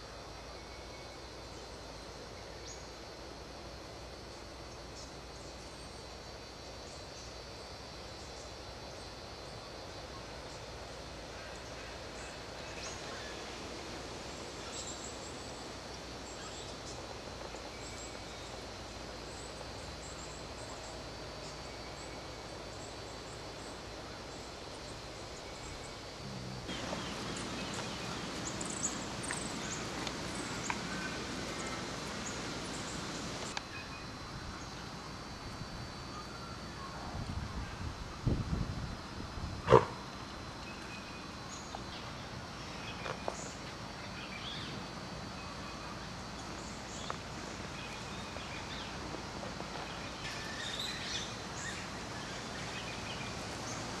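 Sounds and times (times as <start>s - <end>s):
steady forest hiss: 0.0s - 54.0s
rustling in dry undergrowth: 26.7s - 33.7s, 45.9s - 54.0s.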